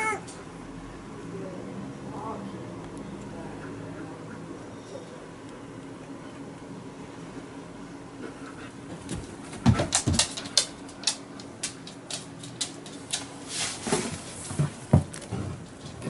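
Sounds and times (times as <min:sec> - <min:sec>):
dog claws clicking on floor: 0:09.0 - 0:13.5.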